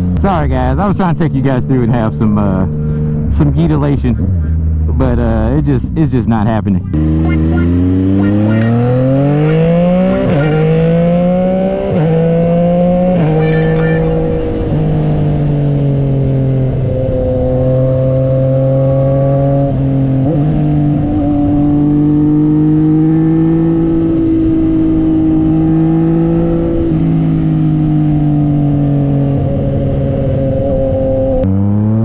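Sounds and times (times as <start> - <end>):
motorcycle engine running: 6.6 - 18.9.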